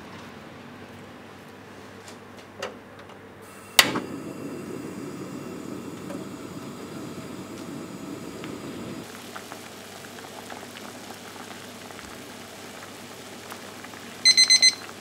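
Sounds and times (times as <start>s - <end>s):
water heating hiss: 3.4s - 15.0s.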